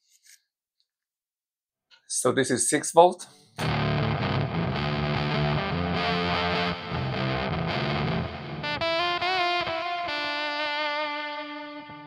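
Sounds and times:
fuzzed electric guitar: 0:03.6 - 0:12.0.

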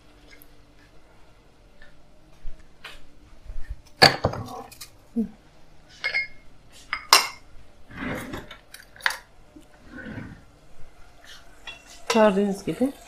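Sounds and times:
wooden spoon scraping a pot: 0:09.6 - 0:10.6.

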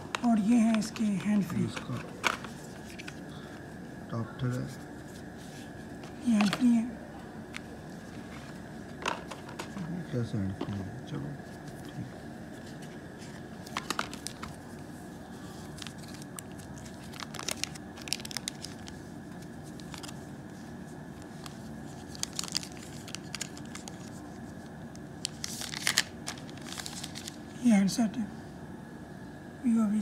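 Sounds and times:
plastic packaging crinkling: 0:12.6 - 0:14.8, 0:15.6 - 0:20.3, 0:21.3 - 0:24.6, 0:25.2 - 0:27.4.

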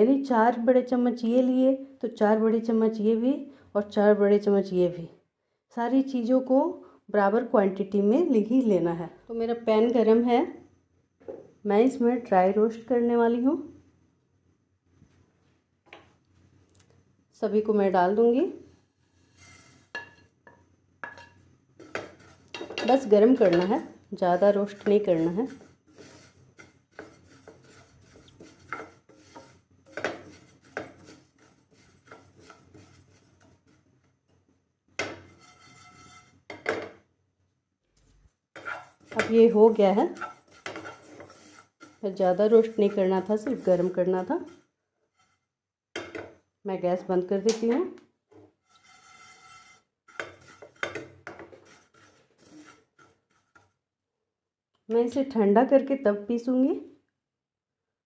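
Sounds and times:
spatula scraping seeds in a pan: 0:18.9 - 0:20.3, 0:21.0 - 0:34.0, 0:35.0 - 0:36.7, 0:38.5 - 0:46.1, 0:48.3 - 0:53.8.

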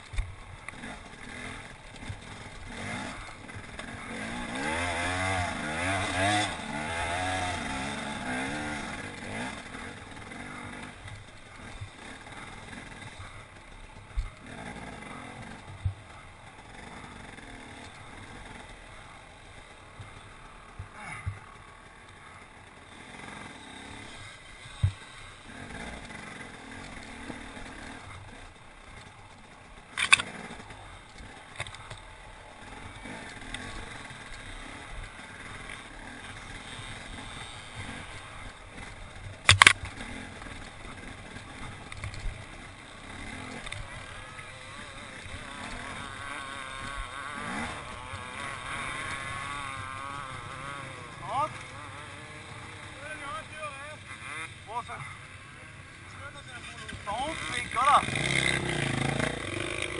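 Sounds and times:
motorcycle engine at low revs: 0:00.0 - 0:59.9.

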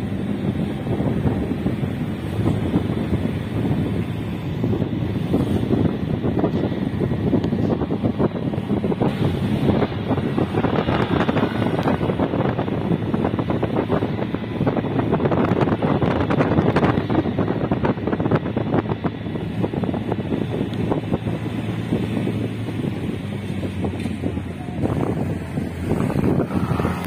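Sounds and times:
vehicle rumble on road: 0:00.0 - 0:27.0
wind buffeting microphone: 0:00.0 - 0:27.0.

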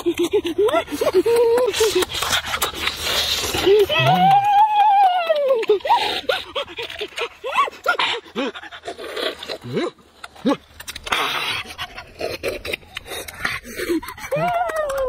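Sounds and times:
slurping from coconut: 0:01.7 - 0:04.3, 0:08.6 - 0:13.6.

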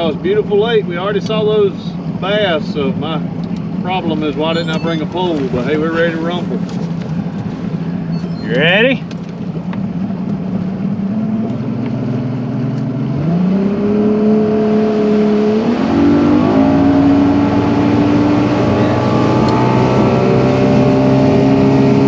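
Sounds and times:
outboard motor throttling up: 0:17.5 - 0:22.0.

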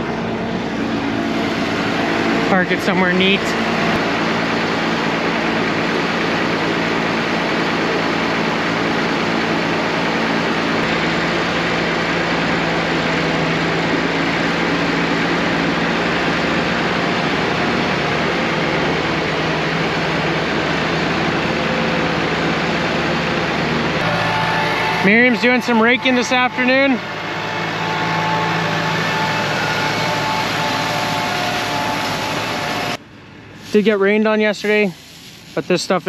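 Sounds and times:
diesel engine running: 0:00.0 - 0:36.0.

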